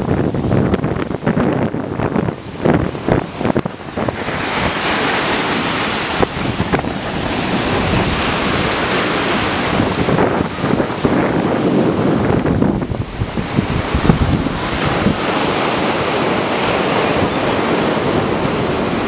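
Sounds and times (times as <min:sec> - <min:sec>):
surf breaking on beach: 0:00.0 - 0:19.0
wind buffeting microphone: 0:00.0 - 0:19.0.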